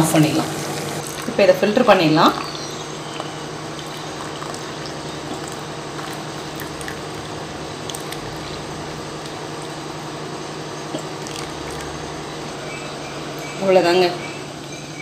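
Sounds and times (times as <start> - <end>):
steady low hum: 0.0 - 15.0
liquid pouring into glass: 3.2 - 8.3, 10.9 - 12.1.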